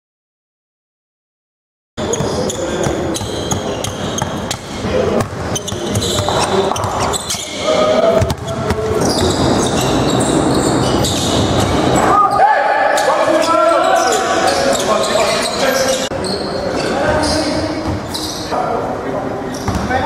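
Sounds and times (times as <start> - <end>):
basketball bouncing on gym floor: 2.1 - 7.4, 8.1 - 12.0, 19.6 - 20.0.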